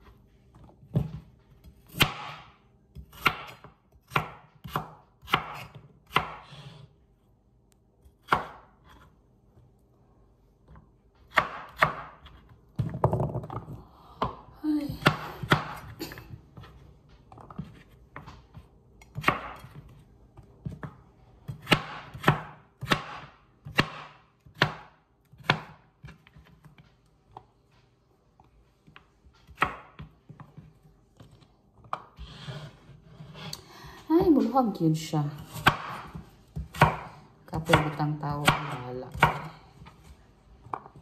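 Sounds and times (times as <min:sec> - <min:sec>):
knife chopping on cutting board: 0:01.0 - 0:06.9, 0:08.0 - 0:09.2, 0:11.2 - 0:14.4, 0:15.0 - 0:16.0, 0:17.5 - 0:26.8, 0:28.9 - 0:30.6, 0:35.4 - 0:41.0.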